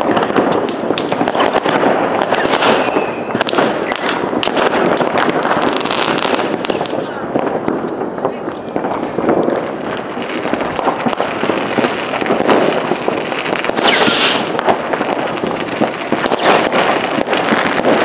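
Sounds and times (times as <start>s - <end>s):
distant fireworks crackling: 0.0s - 18.0s
loud hiss: 10.2s - 17.6s.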